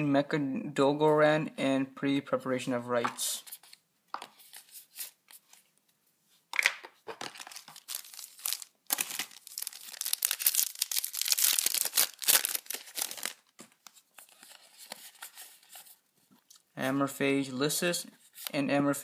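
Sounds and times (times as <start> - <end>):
foil wrapper crinkling and tearing: 7.2 - 13.8.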